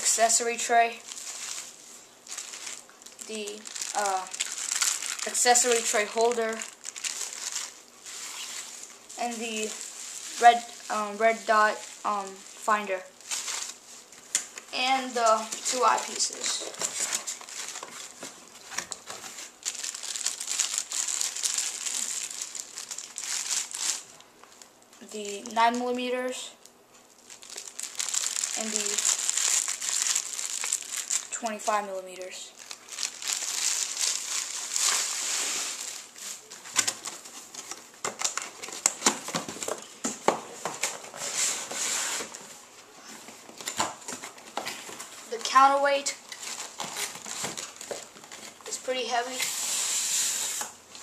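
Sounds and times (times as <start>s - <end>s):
plastic bag crinkling: 0.0s - 14.6s, 15.2s - 25.4s, 27.1s - 41.5s, 43.6s - 49.0s
cardboard scraping and rubbing: 40.6s - 42.4s.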